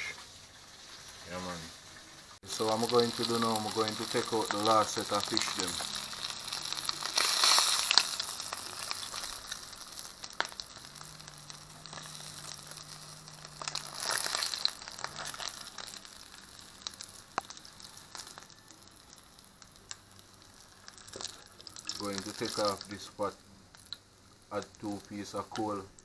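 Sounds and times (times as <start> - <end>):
fish sizzling in hot oil: 0.0 - 26.0.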